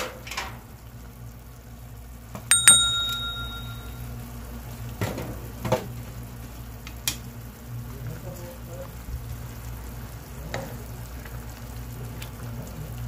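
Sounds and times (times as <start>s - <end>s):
bright bell ding: 2.5s - 4.0s.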